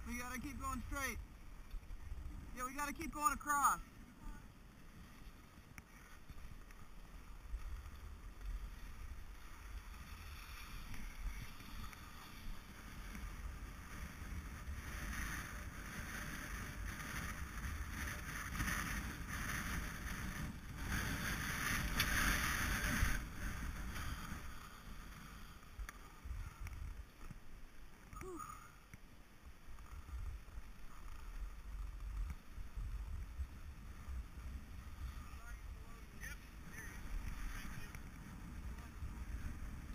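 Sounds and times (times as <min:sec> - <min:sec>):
skis scraping over snow: 0:00.0 - 0:39.9.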